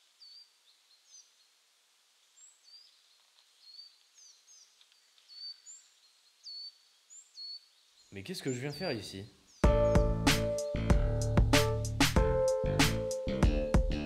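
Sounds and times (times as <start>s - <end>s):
steady faint hiss: 0.0s - 9.6s
small birds chirping faintly: 0.0s - 14.0s.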